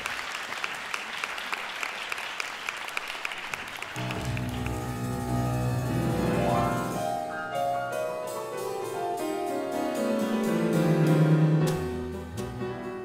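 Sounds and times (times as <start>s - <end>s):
audience applause: 0.0s - 5.2s
grand piano playing: 4.0s - 13.0s.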